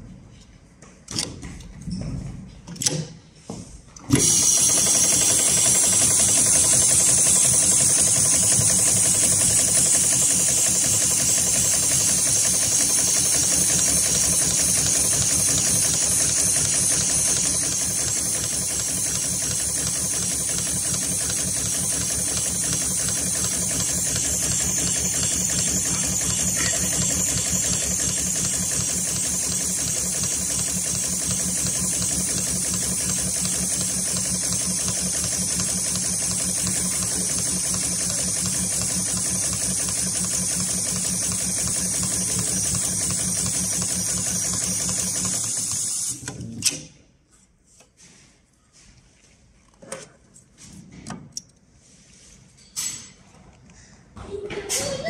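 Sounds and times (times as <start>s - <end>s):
sewing machine stitching: 4.1s - 46.5s.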